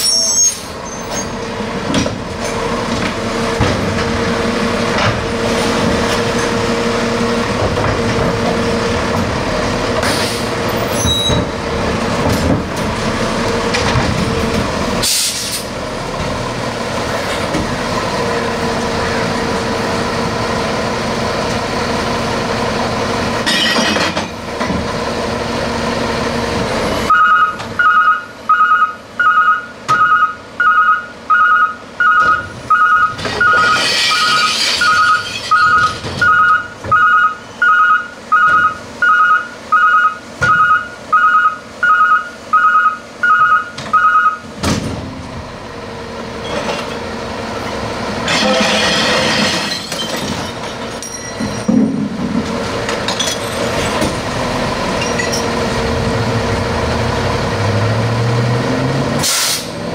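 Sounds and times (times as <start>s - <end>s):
two-tone warning beeper: 27.1s - 44.4s
truck diesel engine running: 44.4s - 48.3s, 50.5s - 59.9s
hiss: 59.2s - 59.8s.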